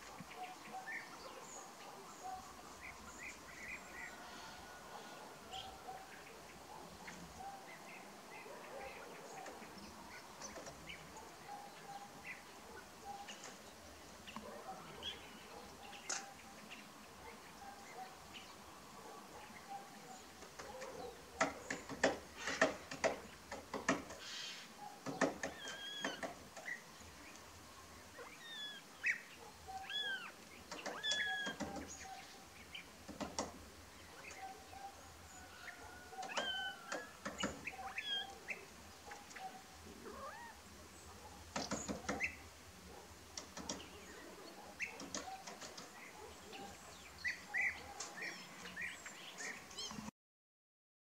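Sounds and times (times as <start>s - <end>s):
woodpecker tapping on wood: 9.4s - 11.0s, 20.2s - 26.8s, 30.4s - 32.2s, 33.0s - 34.5s, 35.3s - 39.4s, 41.4s - 42.4s, 43.3s - 44.1s, 44.7s - 46.7s
birds chirping and whistling: 24.2s - 26.9s, 28.2s - 32.9s, 34.0s - 39.6s.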